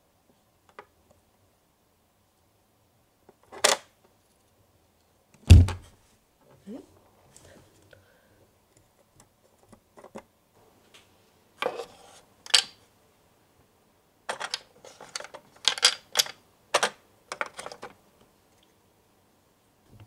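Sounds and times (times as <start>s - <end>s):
plastic toy pieces clattering: 12.5s - 12.8s, 14.3s - 18.0s.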